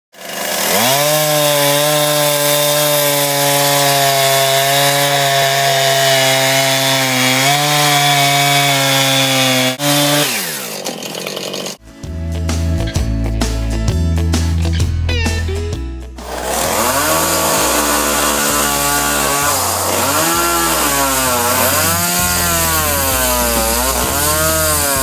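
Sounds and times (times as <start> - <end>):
chainsaw cutting rock: 0.1 - 11.8, 16.2 - 25.0.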